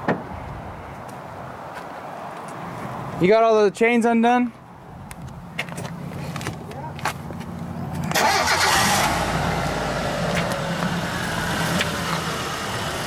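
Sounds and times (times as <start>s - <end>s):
car engine starting and running: 7.7s - 13.0s.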